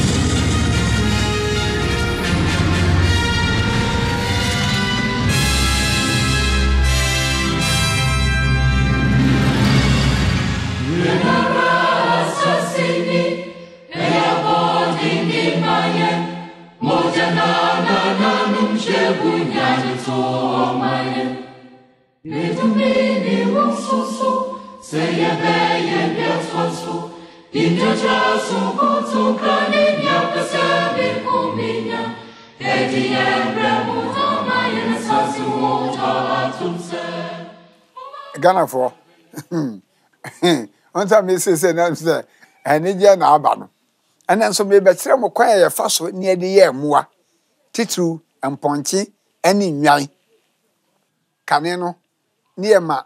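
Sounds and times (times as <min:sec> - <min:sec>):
choir singing: 0:07.5 - 0:38.9.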